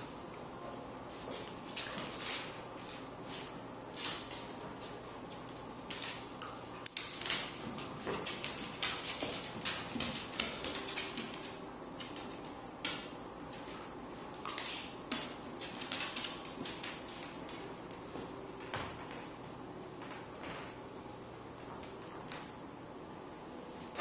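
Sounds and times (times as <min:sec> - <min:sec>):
dog claws clicking on wooden floor: 0:03.9 - 0:13.8, 0:14.4 - 0:17.7.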